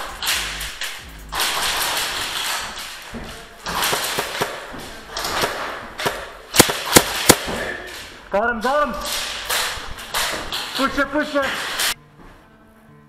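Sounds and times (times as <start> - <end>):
bb impacts: 0.0 - 8.3
airsoft gun shots: 5.3 - 7.8.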